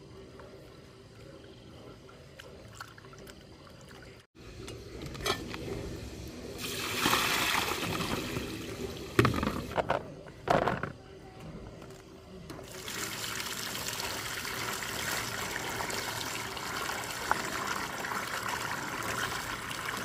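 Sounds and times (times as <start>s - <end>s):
water pouring: 6.6s - 9.7s, 12.7s - 20.0s.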